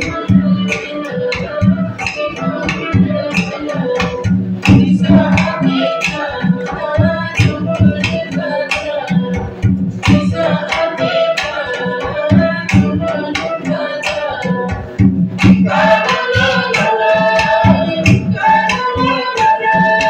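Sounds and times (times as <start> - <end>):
person singing: 0.0 - 4.2, 10.2 - 14.8, 15.7 - 20.0
fast hand-drum strokes: 0.0 - 20.0
held melody line: 0.0 - 20.0.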